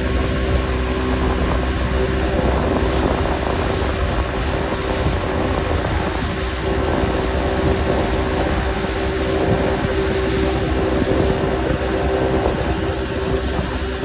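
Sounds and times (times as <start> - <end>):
boat wake: 0.0 - 14.0
outboard motor running: 0.0 - 14.0
wind rushing: 0.0 - 14.0.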